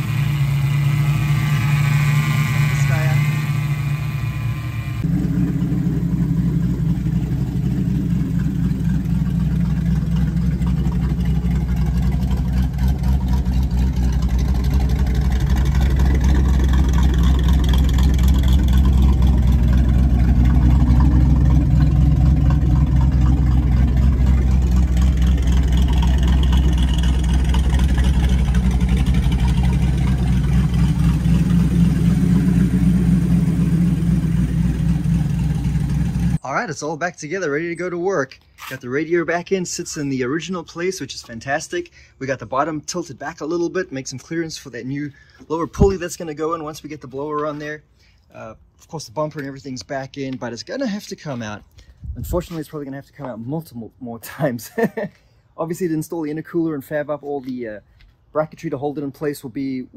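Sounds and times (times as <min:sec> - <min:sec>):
car engine idling: 0:00.0 - 0:36.4.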